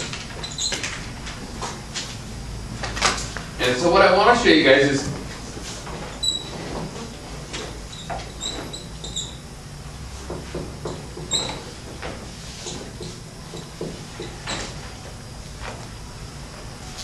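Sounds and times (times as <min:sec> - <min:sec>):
marker squeaks: 0:00.4 - 0:00.9, 0:06.1 - 0:06.7, 0:07.9 - 0:09.4, 0:11.2 - 0:11.8.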